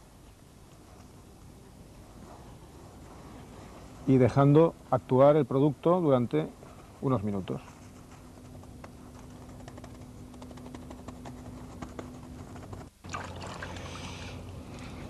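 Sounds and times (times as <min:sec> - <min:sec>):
steady hiss: 0:00.0 - 0:13.0
low steady hum: 0:00.0 - 0:15.0
sponge scrubbing patter: 0:07.6 - 0:12.9.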